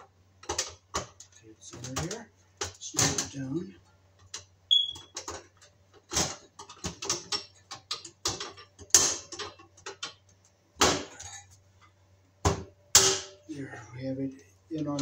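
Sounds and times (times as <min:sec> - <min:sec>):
heater panel snapping into clips: 0:04.3 - 0:11.4, 0:12.5 - 0:13.4.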